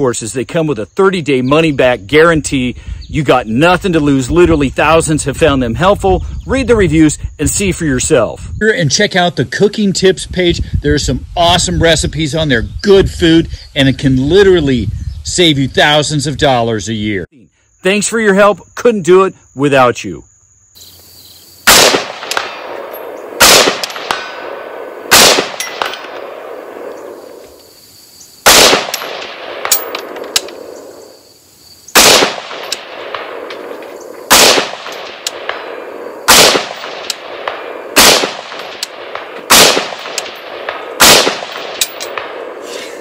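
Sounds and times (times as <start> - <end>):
rifle shots with rolling echo: 21.6 - 27.4, 28.4 - 31.2, 31.9 - 42.7.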